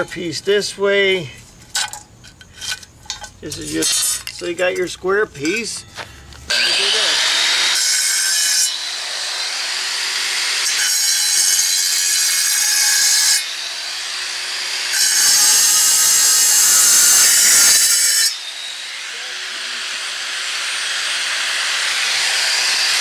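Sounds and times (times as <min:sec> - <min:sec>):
angle grinder cutting stone: 0:05.5 - 0:23.0
grinder motor whining: 0:06.3 - 0:08.1, 0:18.3 - 0:23.0.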